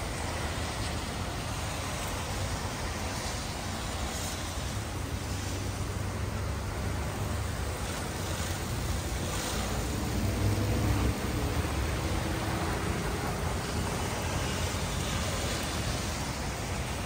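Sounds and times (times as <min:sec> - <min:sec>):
rain hissing on wet pavement: 0:00.0 - 0:17.0
pickup truck driving past: 0:09.3 - 0:13.9.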